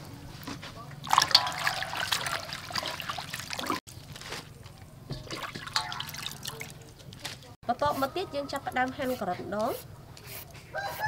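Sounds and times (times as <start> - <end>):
water splashing and trickling: 0.8 - 7.6.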